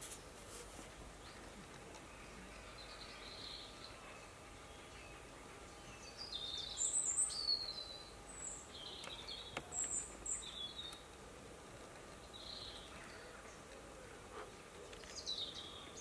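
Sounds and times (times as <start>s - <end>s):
steady outdoor hiss: 0.0s - 16.0s
small birds chirping: 1.0s - 16.0s.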